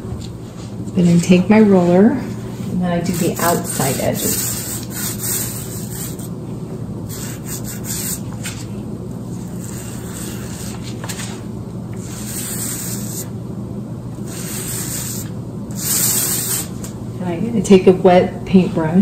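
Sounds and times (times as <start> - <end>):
low background hum: 0.0 - 19.0
paint roller swishing: 3.1 - 6.3, 7.1 - 8.7, 9.3 - 11.4, 12.0 - 13.3, 14.2 - 17.0.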